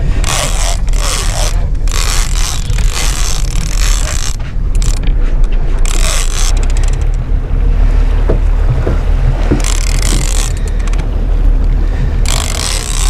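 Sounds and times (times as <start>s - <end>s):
low rumble: 0.0s - 13.0s
fishing reel whirring: 0.1s - 7.2s, 9.6s - 11.0s, 12.2s - 13.0s.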